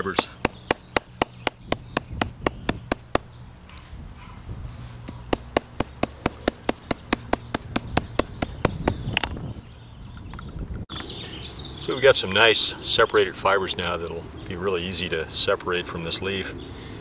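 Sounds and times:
mallet pounding wet leaf: 0.0 - 3.3, 5.1 - 9.1.

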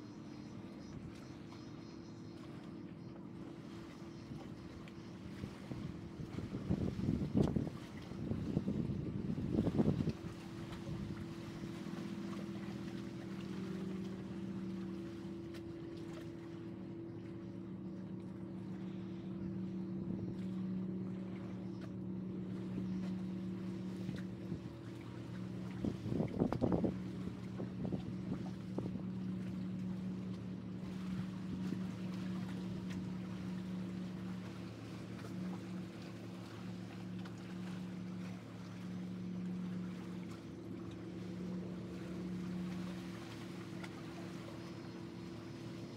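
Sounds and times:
boat engine droning: 0.0 - 45.9
light wind noise: 5.3 - 11.8, 23.8 - 29.6.

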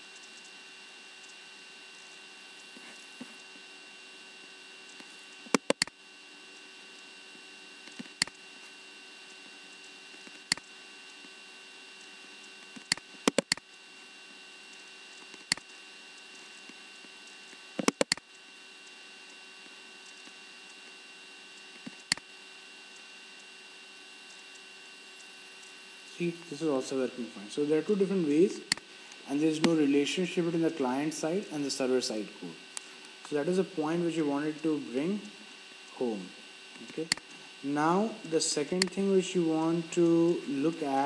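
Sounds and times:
steady electrical hum: 0.0 - 41.0
computer mouse clicking: 4.9 - 6.0, 12.0 - 13.6, 14.7 - 19.4, 24.3 - 24.6.

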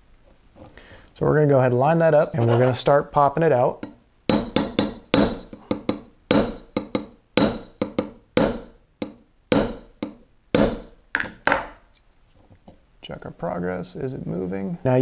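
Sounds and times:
hammer tapping steel punch: 3.8 - 11.8
ringing hammer strike: 4.3 - 10.9.

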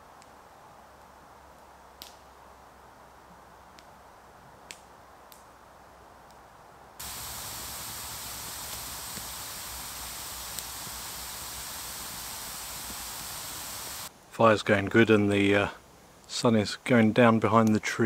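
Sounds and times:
hiss of burning logs: 0.1 - 4.0, 4.6 - 6.4, 7.0 - 14.4
campfire crackling and popping: 2.0 - 2.3, 4.6 - 5.5, 7.0 - 14.1.

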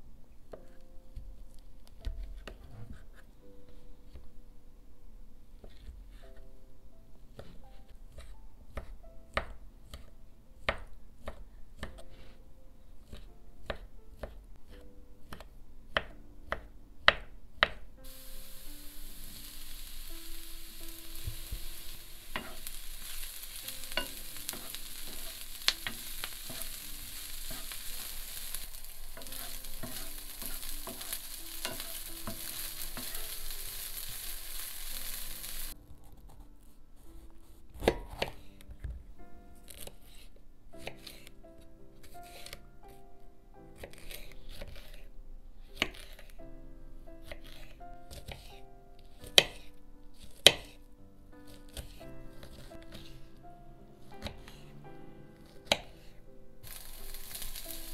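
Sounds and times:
knife chopping on wooden board: 13.0 - 17.8, 37.7 - 38.5, 43.8 - 45.0, 49.2 - 49.6, 50.2 - 50.8, 55.6 - 56.0
food sizzling in frying pan: 18.0 - 35.8, 56.6 - 57.9.

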